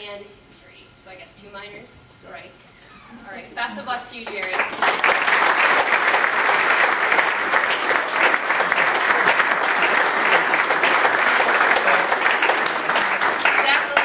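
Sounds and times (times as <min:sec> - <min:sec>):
crowd applauding: 0:04.2 - 0:14.0.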